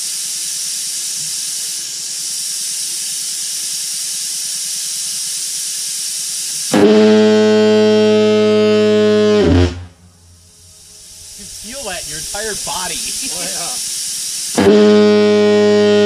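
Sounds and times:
compressed air hissing: 0.0 - 9.2, 10.2 - 16.0
low fog horn blast: 6.7 - 13.9.

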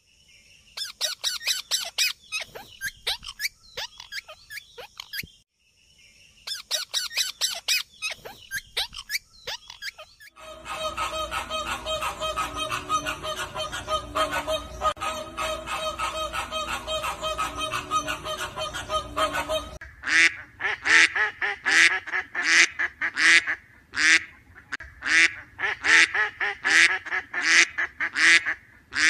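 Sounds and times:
parakeets screeching: 0.8 - 5.3, 6.5 - 19.8
flamingos honking: 10.3 - 20.3.

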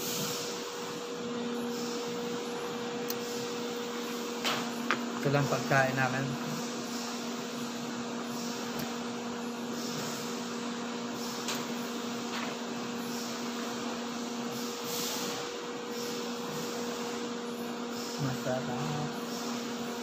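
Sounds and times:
machine hum: 0.0 - 14.8.

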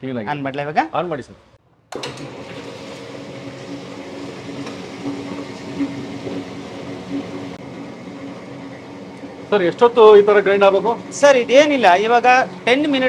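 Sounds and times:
stone rollers knocking in drum: 1.9 - 7.6
wet grinder motor humming: 1.9 - 13.0.

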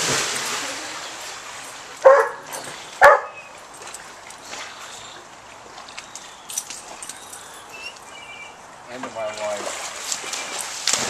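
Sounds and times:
dog barking: 2.0 - 3.4.

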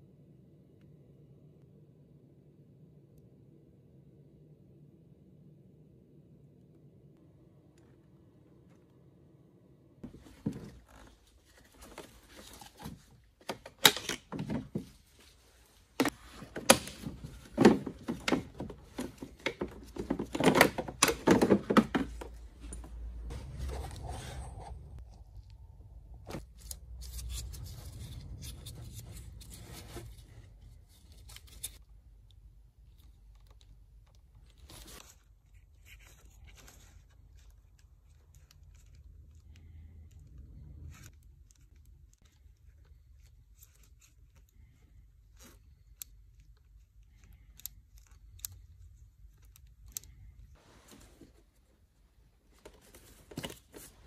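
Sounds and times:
plastic connectors clicking: 37.4 - 50.5.

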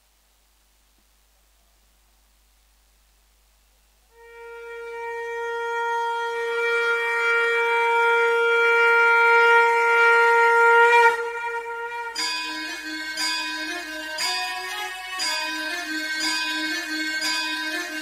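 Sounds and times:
long held wind instrument note: 4.1 - 18.0
plucked music: 4.2 - 18.0.

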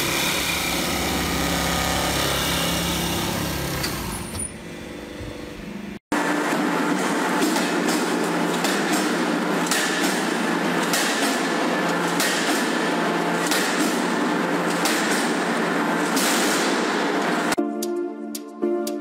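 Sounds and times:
machine hum: 0.0 - 17.6
music: 17.6 - 19.0.

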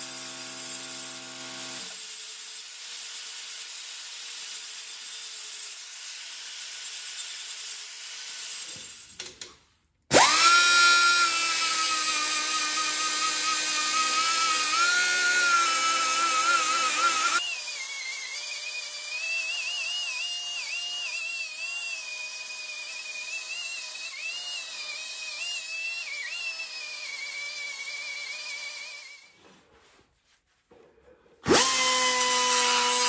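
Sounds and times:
die grinder grinding on steel: 0.0 - 9.2, 10.1 - 29.4, 31.4 - 33.0.

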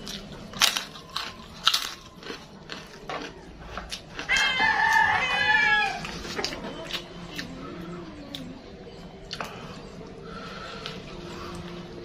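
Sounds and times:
cracker crunching: 0.0 - 7.6.

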